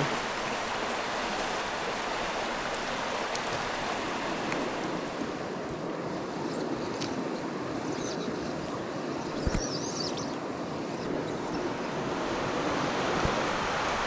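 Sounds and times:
river water rushing over rocks: 0.0s - 6.3s, 11.5s - 14.0s.

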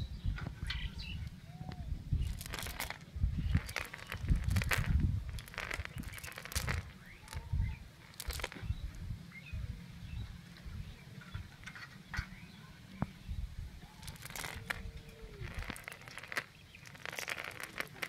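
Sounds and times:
fishing net rustling: 2.2s - 8.7s.

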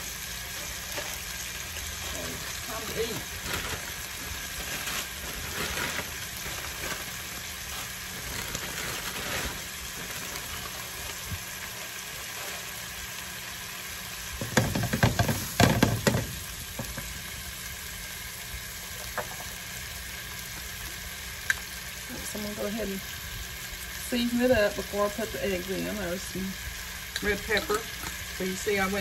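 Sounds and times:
vegetables sizzling in pan: 0.0s - 29.0s
utensil scraping pan: 27.2s - 28.2s.

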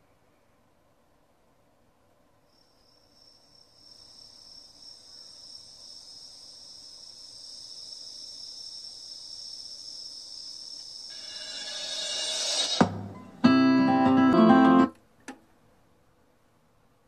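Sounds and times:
high shimmering music: 11.1s - 14.7s.

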